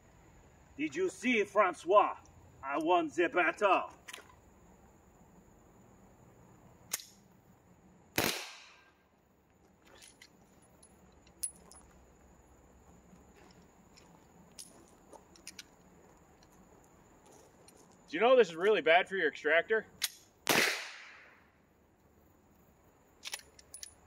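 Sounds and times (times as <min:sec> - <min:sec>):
sharp click: 0:06.9 - 0:07.2, 0:20.0 - 0:20.3
suppressed pistol shot: 0:08.2 - 0:08.9, 0:20.0 - 0:21.3.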